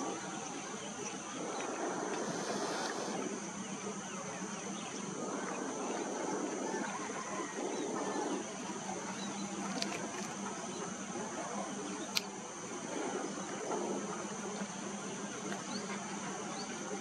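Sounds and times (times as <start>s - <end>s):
high-pitched insect drone: 0.0s - 17.0s
sharp click: 12.1s - 12.3s.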